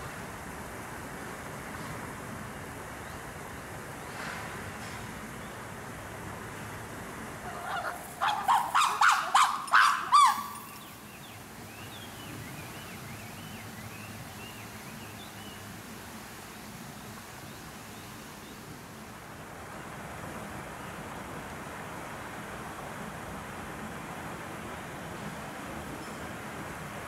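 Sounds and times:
chimpanzee pant-hoot: 0:07.5 - 0:10.7.

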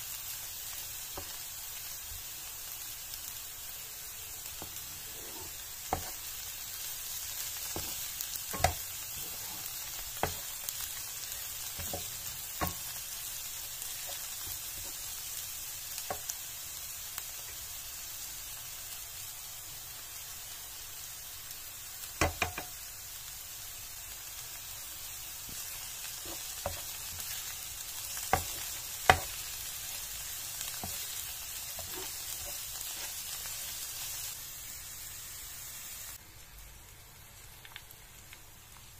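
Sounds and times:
leeks sizzling in oil: 0:00.0 - 0:38.9
wooden spatula knocking on pan: 0:07.8 - 0:08.9, 0:22.2 - 0:22.7, 0:28.4 - 0:29.4.

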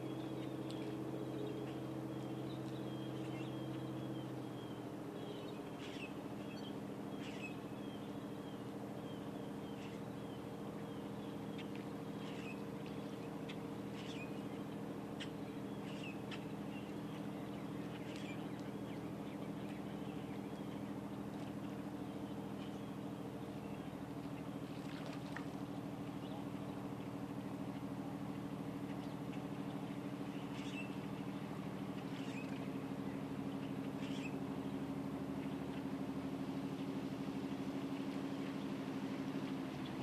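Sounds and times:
birds chirping: 0:00.0 - 0:40.0
boat engine humming: 0:00.0 - 0:40.0.

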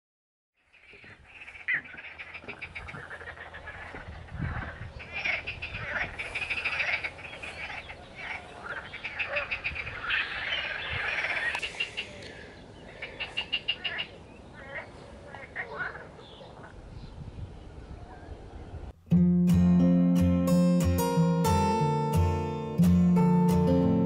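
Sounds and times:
frogs calling: 0:00.6 - 0:16.8.

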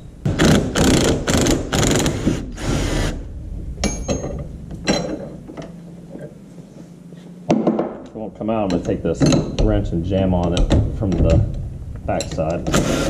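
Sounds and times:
impact wrench hammering: 0:00.0 - 0:03.1, 0:07.5 - 0:08.0
sharp metallic clinks: 0:03.8 - 0:05.3.

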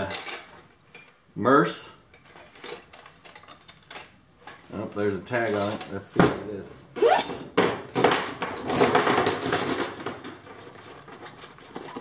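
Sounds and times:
steel wrenches clinking: 0:00.0 - 0:01.2, 0:02.1 - 0:04.7, 0:05.3 - 0:06.1, 0:07.0 - 0:10.7.

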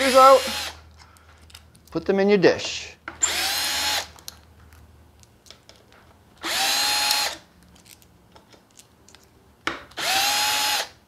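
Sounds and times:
cordless drill motor whine: 0:00.0 - 0:00.8, 0:03.2 - 0:04.1, 0:06.4 - 0:07.4, 0:10.0 - 0:10.9
small clicks of drill bit: 0:06.4 - 0:07.4.

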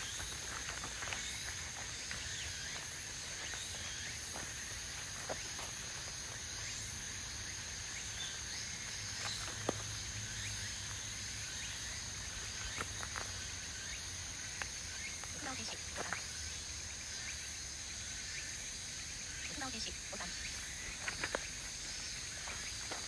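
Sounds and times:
footsteps on gravel: 0:00.0 - 0:10.2, 0:12.2 - 0:13.7, 0:14.4 - 0:16.3, 0:20.8 - 0:23.0
cicadas shrilling: 0:00.0 - 0:23.0.

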